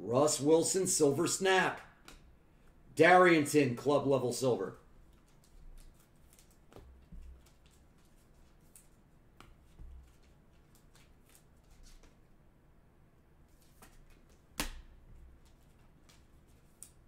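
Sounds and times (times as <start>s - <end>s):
cards flipped through by hand: 5.1s - 12.3s, 13.5s - 17.0s.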